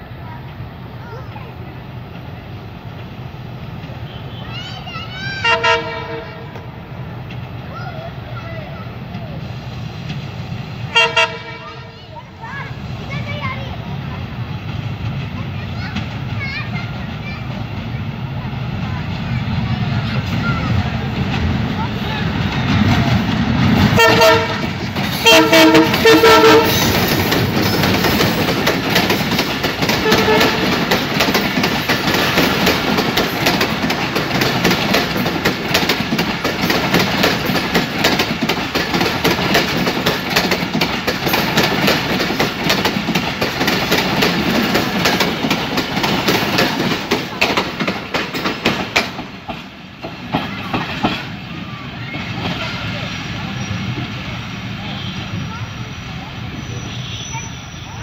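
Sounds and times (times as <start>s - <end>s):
train coaches rumbling past: 0.0s - 58.0s
train horn blasts: 5.4s - 6.7s, 10.9s - 12.0s, 23.9s - 26.9s, 30.0s - 30.8s
wheels clattering over rail joints: 11.9s - 54.2s.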